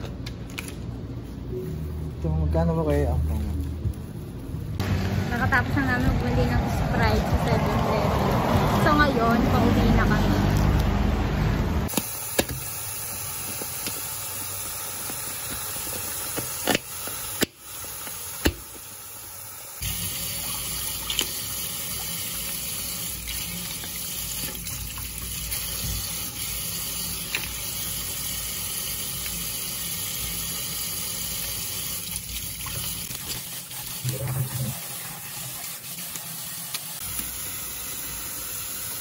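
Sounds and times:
tap water running into a sink: 0:12.0 - 0:39.0.

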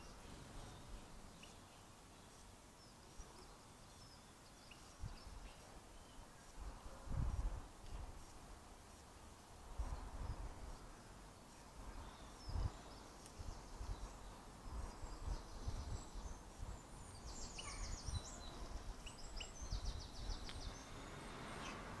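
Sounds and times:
high bird trills: 0:17.1 - 0:21.9.

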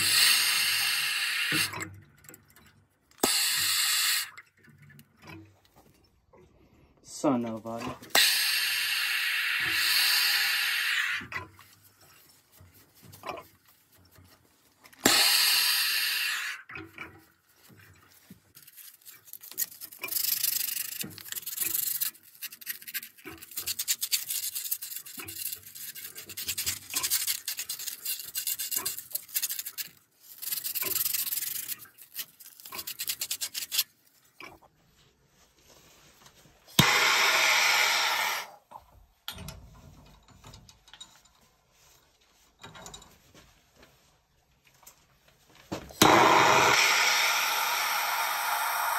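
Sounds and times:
torch flame hissing: 0:00.0 - 0:01.8, 0:08.1 - 0:11.2, 0:15.0 - 0:16.6, 0:36.8 - 0:38.6, 0:46.0 - 0:48.9
emery cloth rasping on pipe: 0:17.6 - 0:34.0.

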